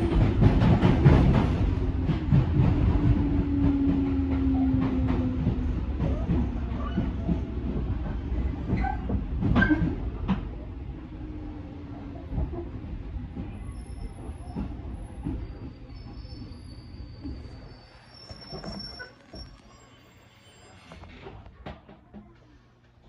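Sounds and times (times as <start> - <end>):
train wheel rumble and clacks: 0.0 - 19.6
faint high brake squeal: 13.5 - 21.4.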